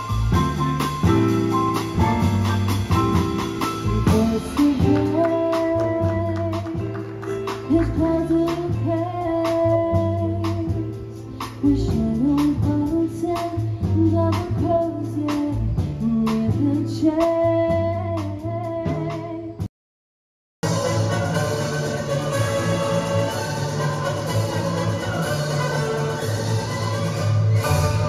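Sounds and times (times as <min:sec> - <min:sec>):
drums with a steady beat: 0:00.0 - 0:19.7, 0:20.6 - 0:28.0
upright bass: 0:00.0 - 0:19.7
woman singing into a microphone: 0:03.9 - 0:06.9, 0:07.7 - 0:19.6.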